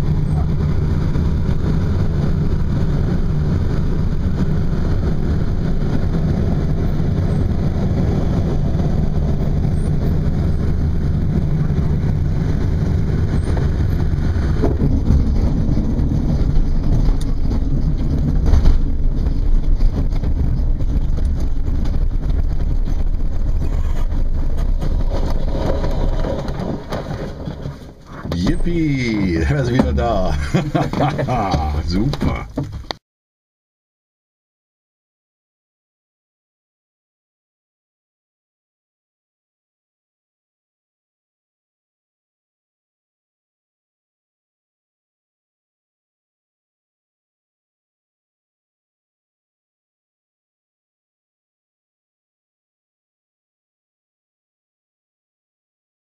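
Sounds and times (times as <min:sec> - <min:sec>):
wheel rumbling over grass: 0:00.0 - 0:33.0.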